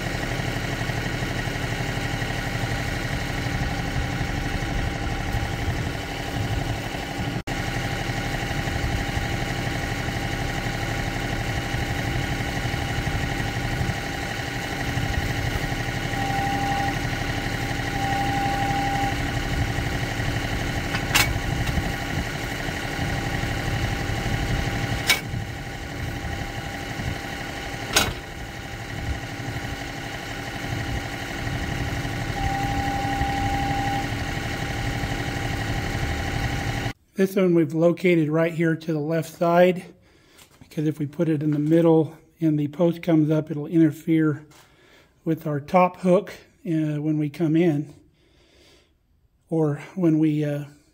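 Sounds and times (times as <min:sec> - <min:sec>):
tractor diesel engine idling: 0:00.0 - 0:37.0
sharp metal clanks: 0:20.9 - 0:21.8, 0:25.0 - 0:25.3.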